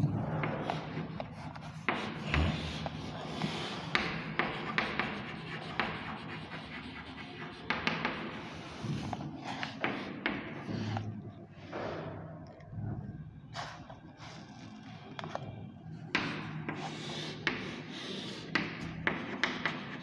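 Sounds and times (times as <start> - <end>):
chalk scratching on blackboard: 0.2 - 11.0, 16.1 - 20.0
chalk tapping on blackboard: 0.4 - 11.0, 16.1 - 20.0.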